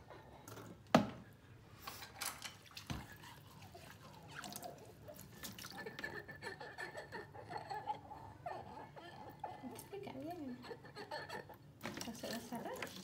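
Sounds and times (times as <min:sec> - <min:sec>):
water splashing and dripping: 0:03.8 - 0:05.8.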